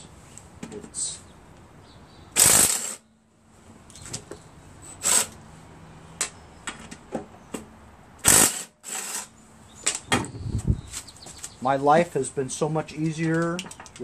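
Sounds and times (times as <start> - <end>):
impact driver bursts: 2.4 - 3.0, 8.2 - 9.3.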